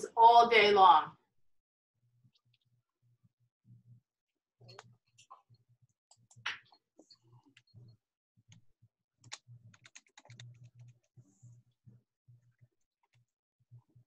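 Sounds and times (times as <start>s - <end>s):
typing on a computer keyboard: 9.2s - 11.1s.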